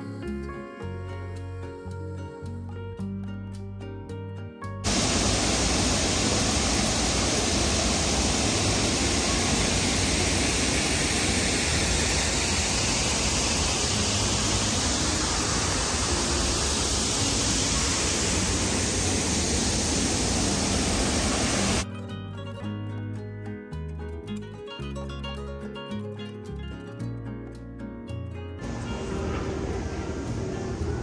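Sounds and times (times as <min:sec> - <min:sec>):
steady rushing noise: 0:04.9 - 0:21.8, 0:28.6 - 0:31.0.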